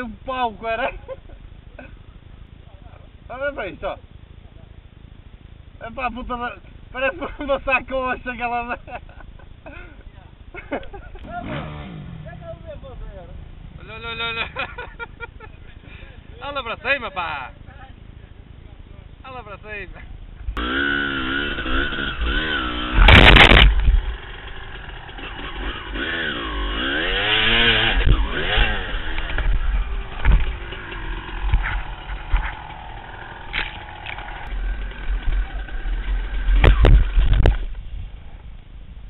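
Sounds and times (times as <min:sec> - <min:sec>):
dirt bike engine revving: 0:11.1 - 0:16.0, 0:20.6 - 0:37.7
motorbike crashing: 0:20.6 - 0:37.8.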